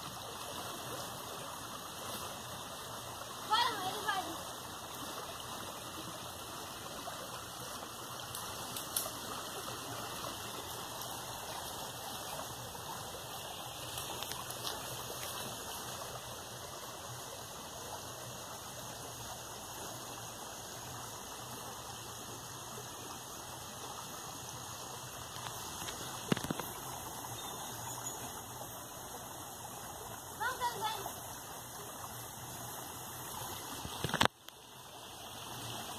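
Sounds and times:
stream flowing: 0.0 - 35.9
faint clicks: 8.2 - 9.2.

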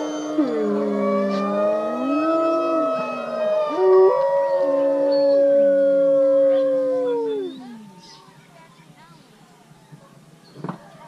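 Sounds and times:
wolves howling: 0.0 - 8.2.

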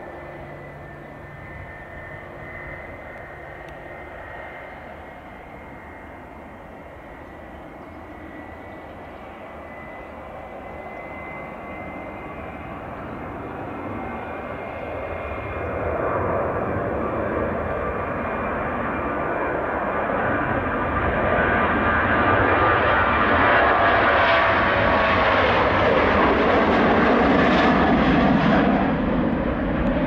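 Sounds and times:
jet engines whining: 0.0 - 30.0.

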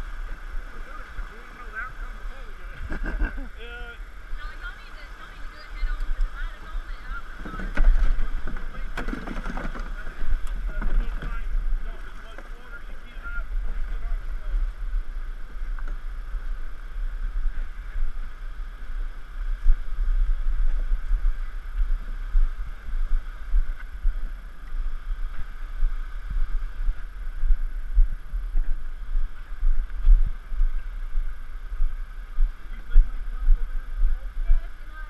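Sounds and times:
canoe hull scraping over rock: 7.2 - 12.6.

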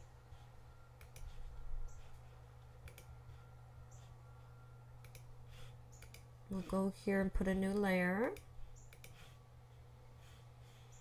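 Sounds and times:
steady low hum: 0.0 - 11.0
computer mouse clicks: 1.0 - 2.1, 2.8 - 3.1, 5.0 - 6.3, 7.7 - 9.3.

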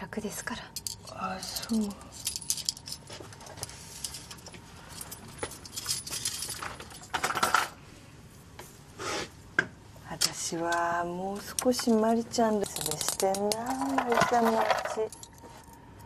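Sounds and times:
chain jangling and clinking: 0.7 - 7.6
chain scraping rattles: 0.7 - 7.7, 11.4 - 15.8.

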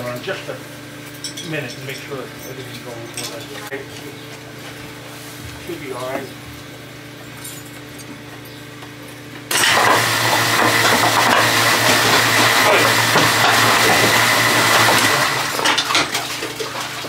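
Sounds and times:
steady machine whine: 5.6 - 16.0.

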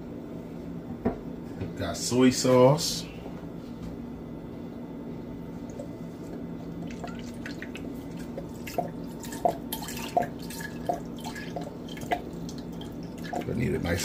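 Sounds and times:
steady low hum: 0.0 - 14.0
sauce pouring and glugging: 5.6 - 13.6.

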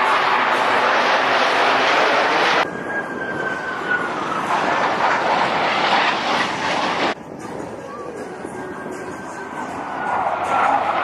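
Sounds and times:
falling jet whine: 0.0 - 7.2
jet engines passing overhead: 0.0 - 11.0.

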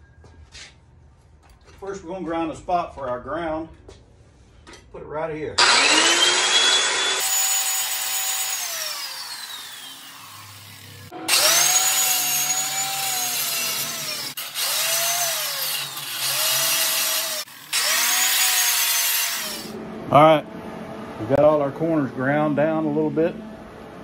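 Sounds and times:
angle grinder grinding steel: 5.6 - 19.8.

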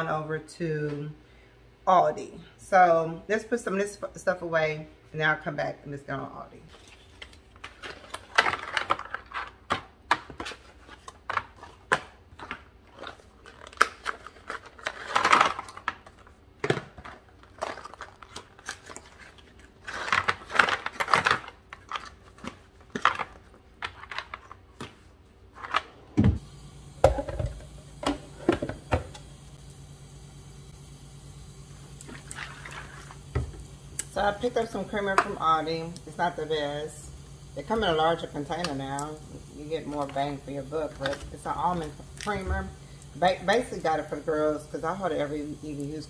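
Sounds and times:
packaging rustling: 6.7 - 25.8
steady low hum: 25.1 - 46.0.

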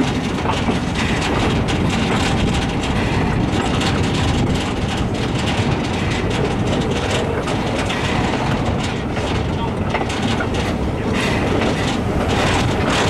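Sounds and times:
steam train rumble: 0.0 - 13.0
wheels clattering on rails: 0.0 - 13.0.

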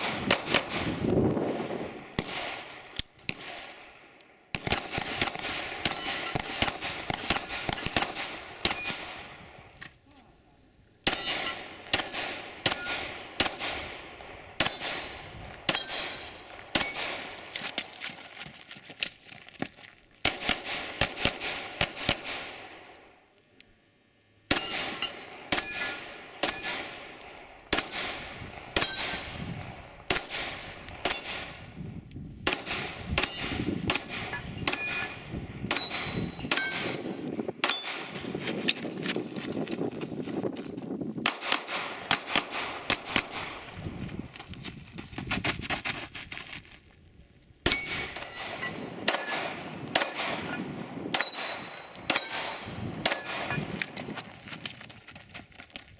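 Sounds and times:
bullets ringing on steel targets: 5.8 - 9.3, 11.1 - 13.7, 14.6 - 17.9, 24.5 - 30.4, 31.0 - 31.5, 32.5 - 38.2, 47.7 - 53.8.

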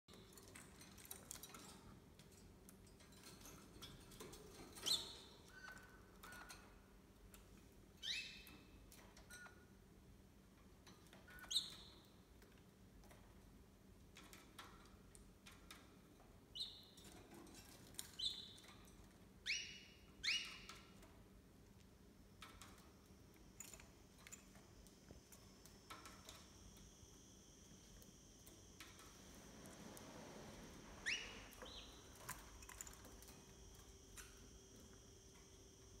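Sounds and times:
faint room hum: 0.1 - 36.0
lovebirds chirping: 31.0 - 32.3.

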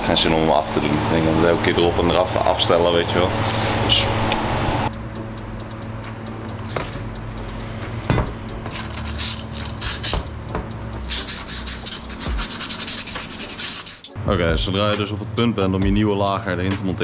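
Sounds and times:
steady low hum: 0.0 - 14.7
emery cloth rasping on metal: 8.6 - 10.3, 11.0 - 14.1.

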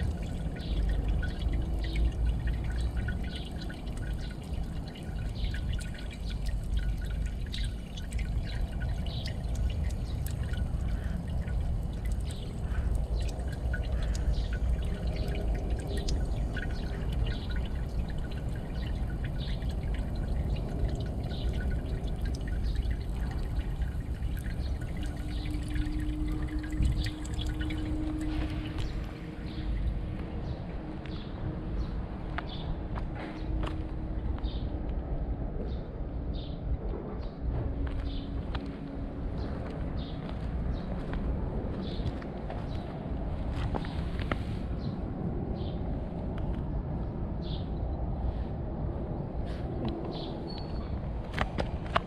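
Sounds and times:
water trickling onto stone: 0.0 - 30.3.

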